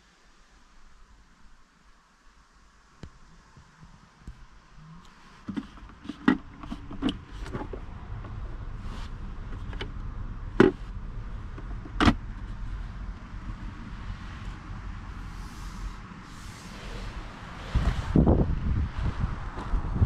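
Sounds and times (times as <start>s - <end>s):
steady low hum: 0.5s - 20.0s
clicks and knocks of car fittings: 11.5s - 12.2s.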